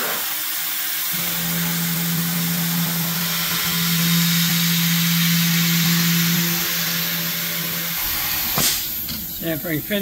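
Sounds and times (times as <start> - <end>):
router spindle cutting metal: 1.0 - 8.1
air hissing from nozzles: 7.9 - 9.8.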